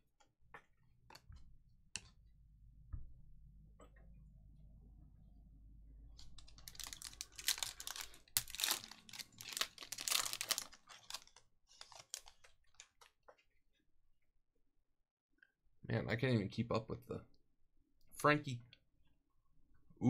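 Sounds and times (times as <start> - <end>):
foil wrapper crackling: 6.4 - 13.1.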